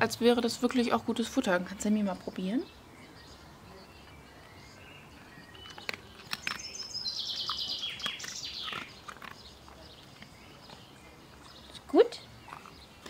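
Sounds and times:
songbird trilling: 2.2 - 13.0
sharp clicks: 5.5 - 9.5.

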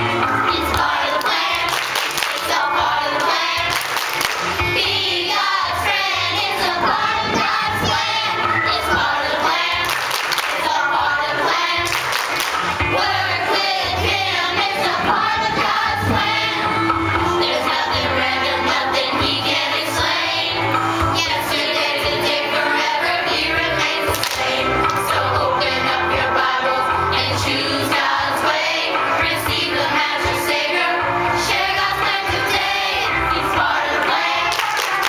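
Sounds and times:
children's choir singing: 0.0 - 35.0
instrumental accompaniment with bass: 0.0 - 35.0
hand claps: 1.2 - 2.5, 3.7 - 4.5, 9.8 - 10.6, 11.9 - 12.7, 24.1 - 25.0, 34.5 - 35.0.

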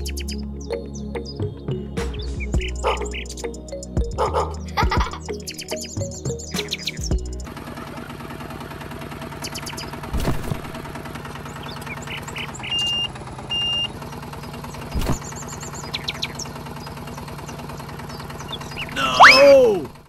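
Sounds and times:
tractor engine puttering: 2.0 - 20.0
faint bird chirps: 9.4 - 10.0, 11.4 - 19.4.

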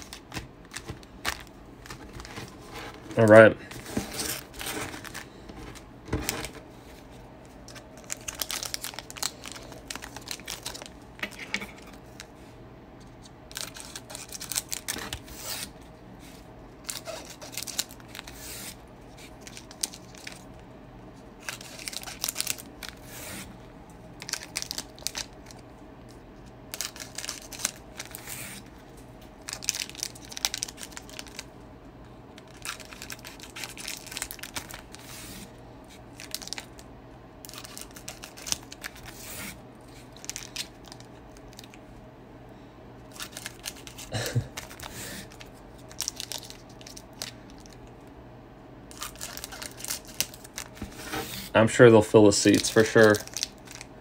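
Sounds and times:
foil packs crinkling and tearing: 0.0 - 6.6, 7.6 - 12.3, 13.5 - 15.7, 16.8 - 20.5, 21.4 - 23.5, 24.2 - 25.6, 26.7 - 28.7, 29.4 - 31.5, 32.4 - 35.5, 36.1 - 41.8, 43.1 - 47.9, 48.9 - 51.6, 52.2 - 53.9.

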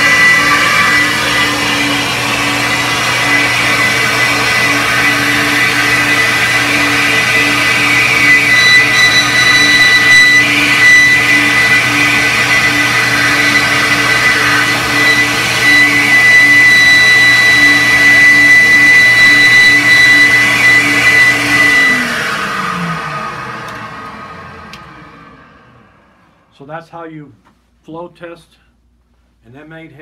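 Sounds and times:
steady high whine: 0.0 - 22.0.

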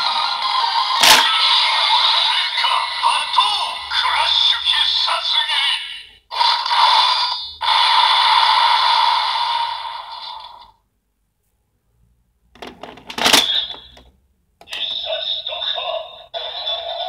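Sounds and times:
plastic clicks and clack: 12.6 - 14.8.

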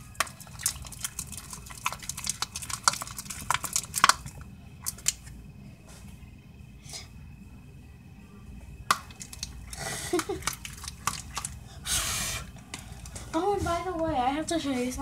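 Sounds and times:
utensil stirring slime in bowl: 0.0 - 5.3, 8.9 - 11.6.

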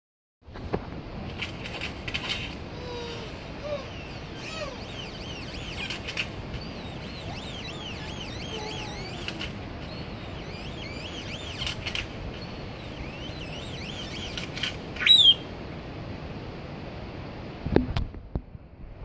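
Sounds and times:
grackle whistles: 1.8 - 15.5
harsh bird call: 2.7 - 15.5
bird clacks: 3.9 - 15.4.

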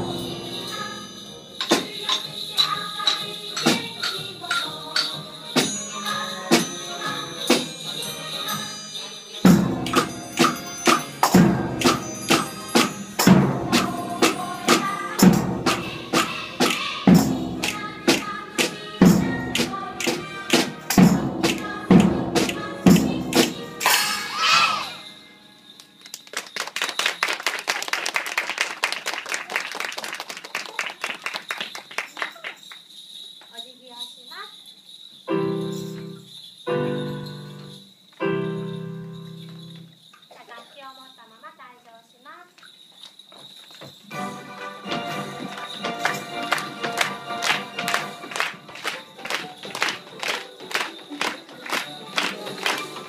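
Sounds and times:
children's rhythm band playing: 0.0 - 25.1, 43.9 - 53.0
applause: 26.0 - 32.9, 45.5 - 53.0.

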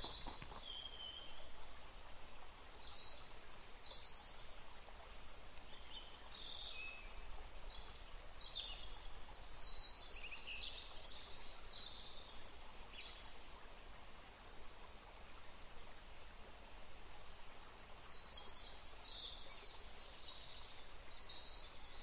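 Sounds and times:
small birds chirping: 0.0 - 1.4
faint outdoor hiss: 0.0 - 22.0.

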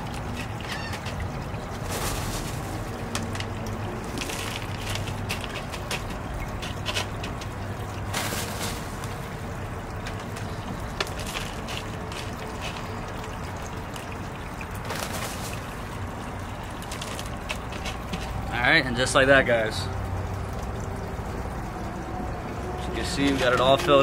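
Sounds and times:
water trickling: 0.0 - 24.0
clay pebbles clattering: 1.9 - 9.3, 10.0 - 13.3.

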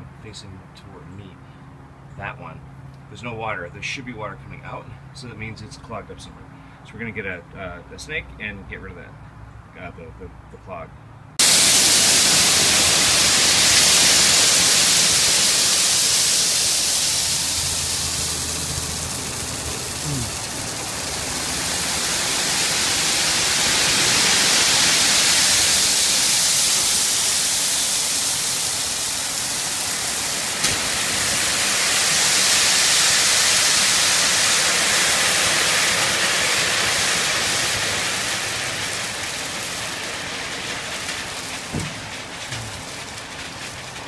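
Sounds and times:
gravel sliding off truck bed: 11.4 - 44.0
truck engine running low: 11.4 - 44.0.

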